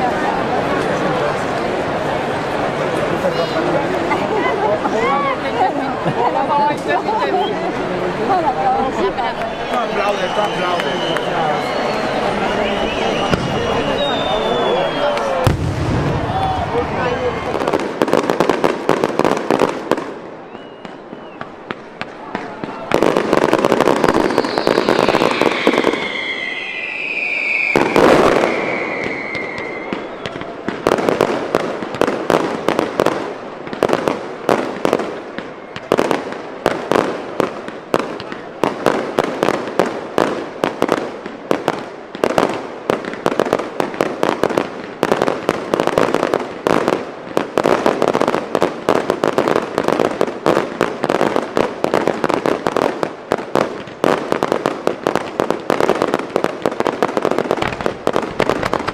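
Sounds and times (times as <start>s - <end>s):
whistling rockets: 9.3s - 18.4s, 20.4s - 32.5s
heavy firework bang: 12.8s - 14.4s, 15.4s - 19.1s
firework shell bursts and cracks: 57.6s - 58.9s.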